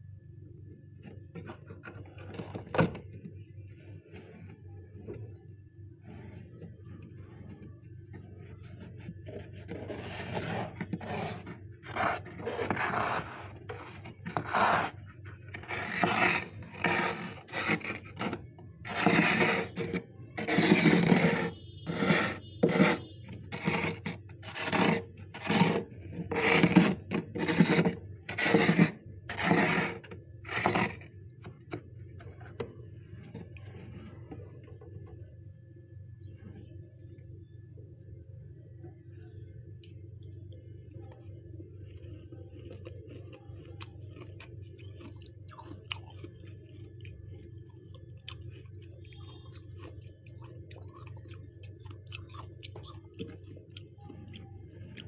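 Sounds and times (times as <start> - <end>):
scraping freezer frost: 1.0 - 35.5.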